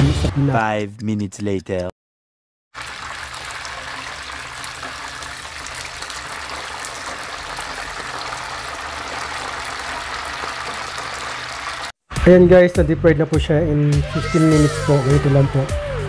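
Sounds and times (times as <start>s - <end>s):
deep-frying sizzle with crackles: 2.8s - 11.9s.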